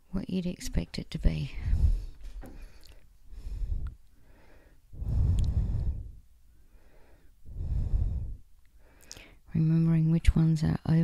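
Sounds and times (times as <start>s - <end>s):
person breathing close to microphone: 1.5s - 9.5s.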